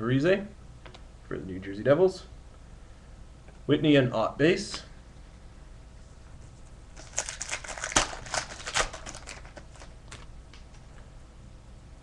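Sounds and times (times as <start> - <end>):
cards being flipped and shuffled: 6.5 - 10.8.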